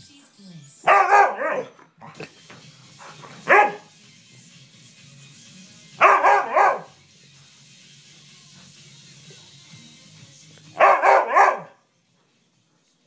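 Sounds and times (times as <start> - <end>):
dog bark-howling: 0.9 - 1.7, 3.5 - 3.9, 6.0 - 6.9, 10.8 - 11.8.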